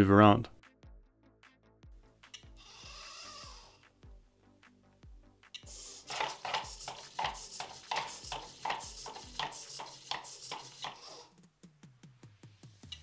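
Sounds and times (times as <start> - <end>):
robot dog feet tapping table: 6.0 - 11.1.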